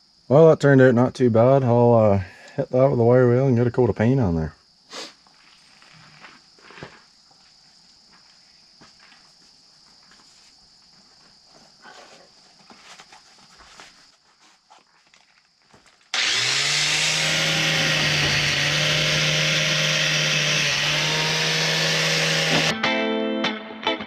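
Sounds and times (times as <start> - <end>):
quiet rustling: 5.2 - 7.5, 8.2 - 16.1
angle grinder with wire wheel: 16.1 - 22.7.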